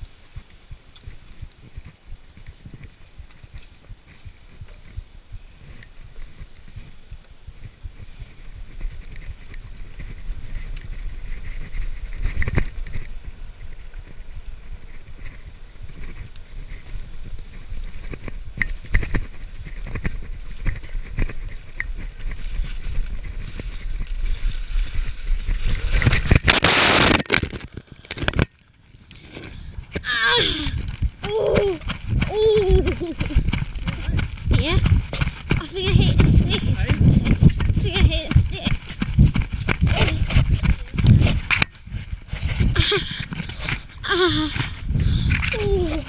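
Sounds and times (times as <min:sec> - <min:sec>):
bicycle tyre rumble: 0:00.0 - 0:46.0
wind: 0:00.0 - 0:46.0
bicycle crashing: 0:23.8 - 0:28.6
person crying out: 0:30.0 - 0:33.0, 0:44.0 - 0:44.8.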